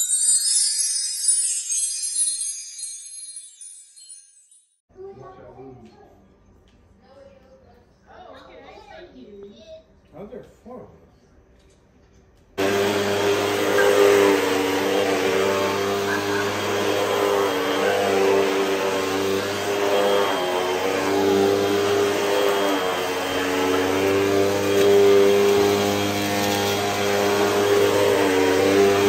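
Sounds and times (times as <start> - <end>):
vacuum cleaner running over carpet: 12.6 - 29.0.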